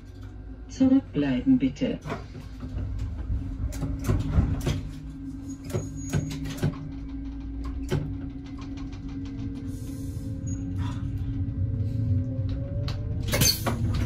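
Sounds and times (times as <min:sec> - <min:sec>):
railcar engine hum: 0:00.0 - 0:14.0
train doors closing clunks: 0:02.0 - 0:09.8, 0:12.7 - 0:14.0.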